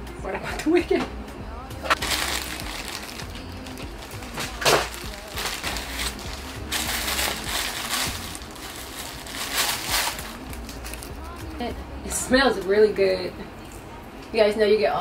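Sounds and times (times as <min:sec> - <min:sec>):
music: 0:00.0 - 0:15.0
plastic bag crinkling: 0:01.9 - 0:11.4.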